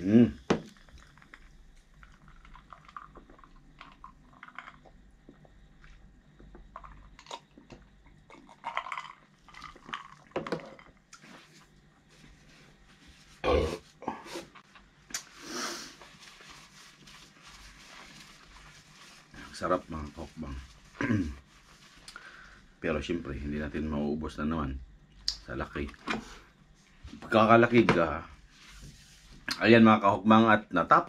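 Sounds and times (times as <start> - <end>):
chewing food close-up: 0.7 - 10.4.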